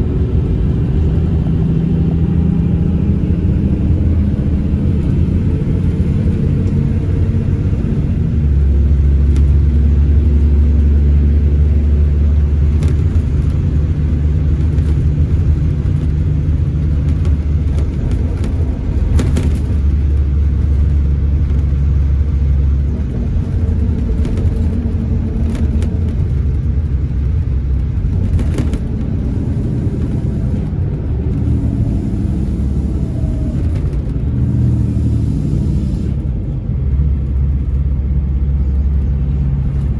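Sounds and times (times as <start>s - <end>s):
coach diesel engine drone: 0.0s - 39.9s.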